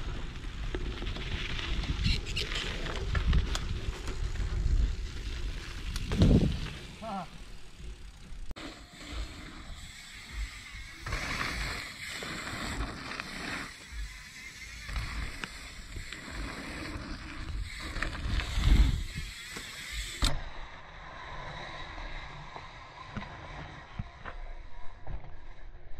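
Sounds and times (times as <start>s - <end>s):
wind buffeting microphone: 1.5s - 6.8s.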